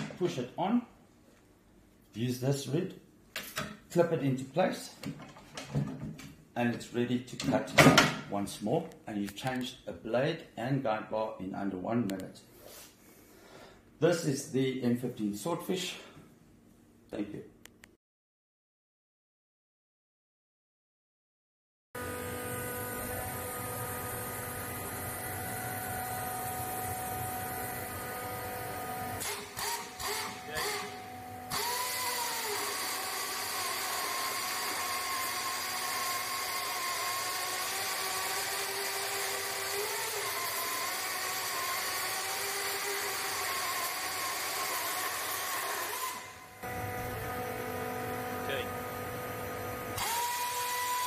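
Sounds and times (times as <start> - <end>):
pneumatic chainsaw sawing wood: 22.0 - 51.0.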